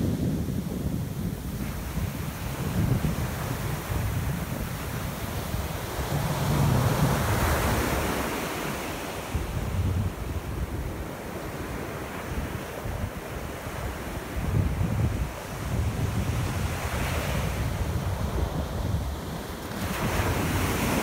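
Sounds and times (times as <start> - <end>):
ocean surf breaking: 0.0 - 21.0
wind buffeting microphone: 0.0 - 21.0.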